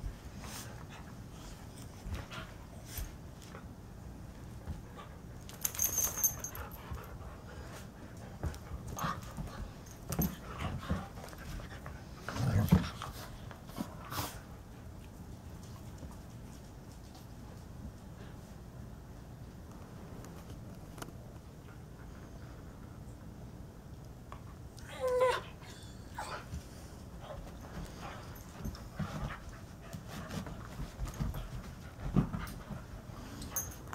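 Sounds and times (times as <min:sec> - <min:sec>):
dogs scuffling on a rug: 0:00.0 - 0:18.7, 0:26.3 - 0:33.9.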